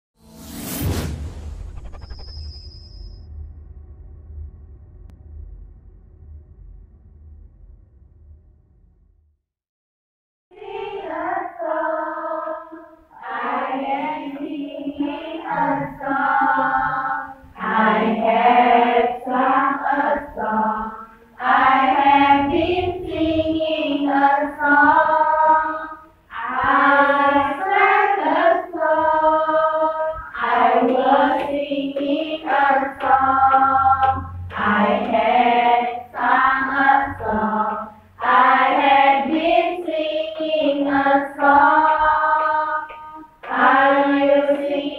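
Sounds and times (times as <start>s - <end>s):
women singing together: 10.6s - 44.9s.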